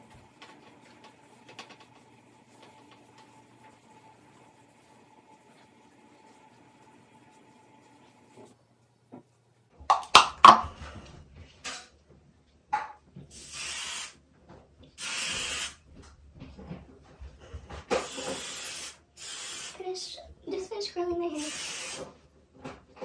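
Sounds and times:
aerosol hairspray hissing: 13.3s - 14.2s, 15.0s - 15.8s, 18.0s - 20.1s, 21.3s - 22.1s.

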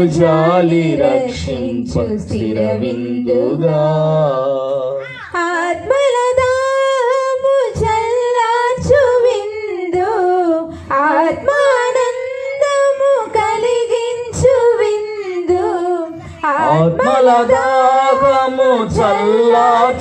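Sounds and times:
woman singing a hymn: 5.2s - 20.0s
soft low beats: 5.7s - 20.0s.

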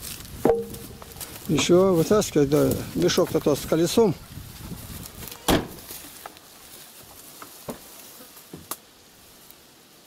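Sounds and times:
knocks and clunks of objects handled: 0.4s - 1.7s.

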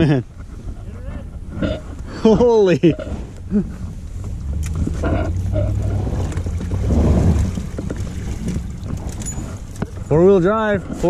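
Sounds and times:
low engine rumble: 2.3s - 11.0s.

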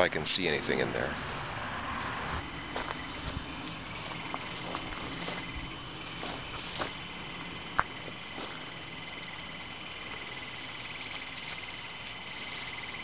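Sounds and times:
leaves and twigs rustling: 2.0s - 13.0s.

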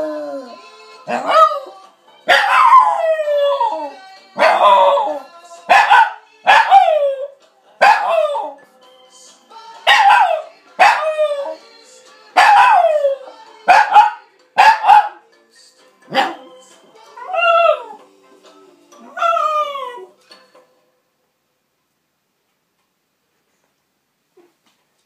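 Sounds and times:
dog howling: 0.0s - 8.6s, 17.2s - 18.0s, 19.0s - 20.2s
music: 0.0s - 22.0s.

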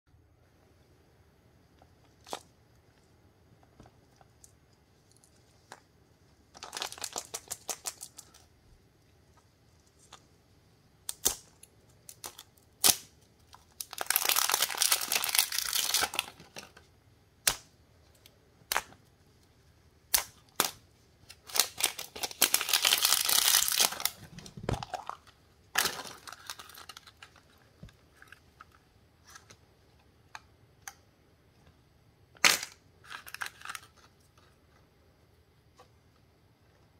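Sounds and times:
plastic wrapper crinkling: 6.5s - 8.5s, 12.0s - 16.9s, 20.2s - 29.6s.

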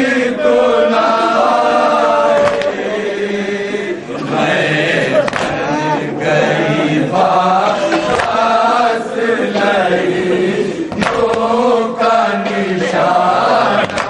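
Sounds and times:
men chanting a lament: 0.0s - 14.0s
hand slapping chest: 5.3s - 5.5s, 10.9s - 11.5s.

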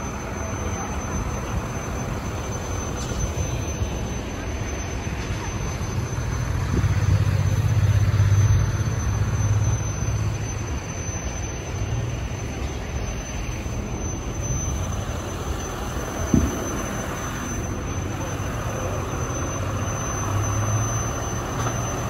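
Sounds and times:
background traffic noise: 0.0s - 22.0s
vehicle engine rumble: 0.0s - 22.0s.

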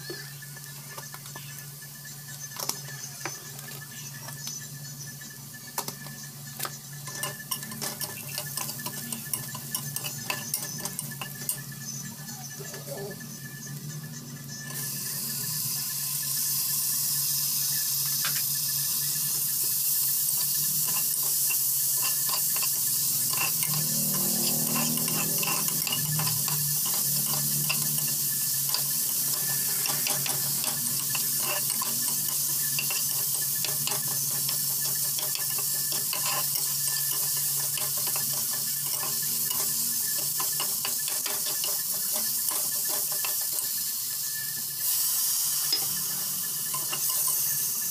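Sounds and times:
food sizzling in hot oil: 0.0s - 47.9s
metal spatula scraping a pot: 7.0s - 11.6s, 20.4s - 43.6s.

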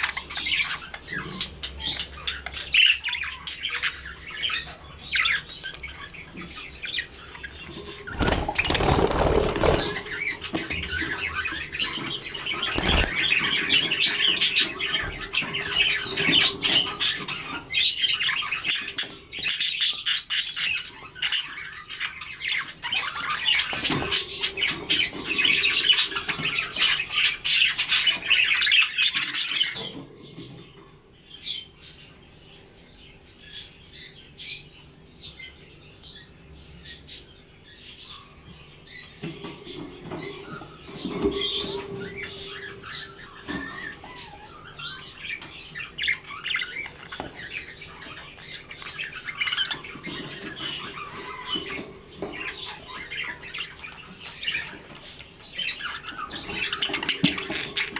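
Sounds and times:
budgerigars chattering and squawking: 0.0s - 57.9s
wing flapping: 8.1s - 10.2s.

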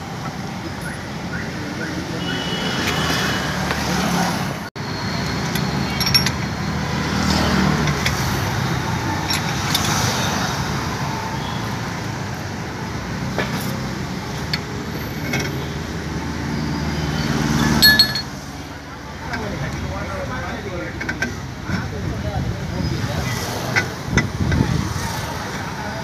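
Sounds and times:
traffic noise: 0.0s - 26.0s
wrench clinking on a bolt: 5.2s - 6.5s, 17.8s - 18.4s.

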